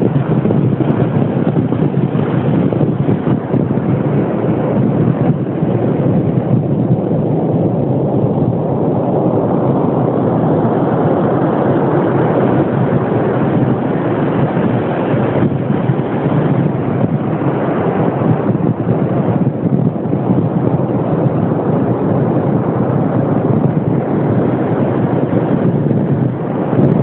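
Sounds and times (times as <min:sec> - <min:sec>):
surf washing: 0:00.0 - 0:27.0
wind buffeting microphone: 0:00.0 - 0:27.0.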